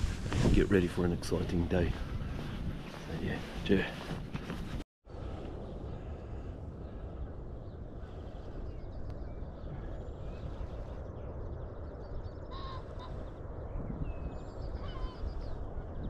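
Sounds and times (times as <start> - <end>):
wind noise on microphone: 0.0 - 16.0
distant waterfowl calling: 12.5 - 13.3, 14.8 - 15.5.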